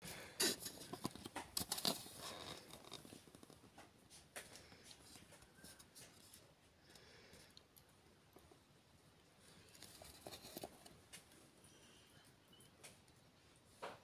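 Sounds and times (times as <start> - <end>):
scratchy rustling: 9.6 - 11.0.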